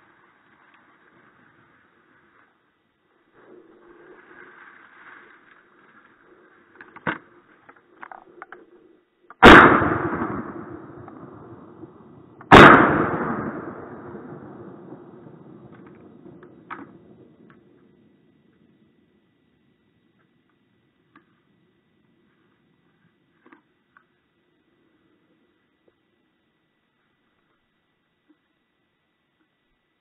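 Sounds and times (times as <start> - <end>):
shotgun shots echoing: 9.4 - 17.0.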